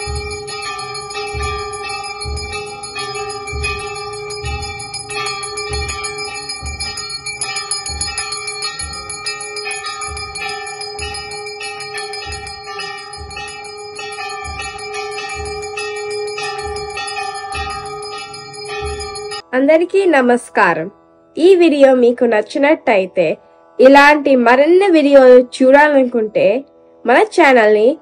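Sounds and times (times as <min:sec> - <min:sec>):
bells ringing fast: 0:00.0 - 0:19.4
low thud: 0:00.0 - 0:19.4.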